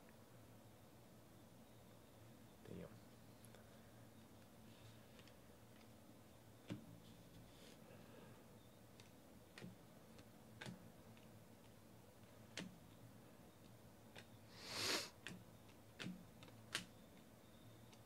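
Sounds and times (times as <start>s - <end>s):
card sliding swish: 14.6s - 15.1s.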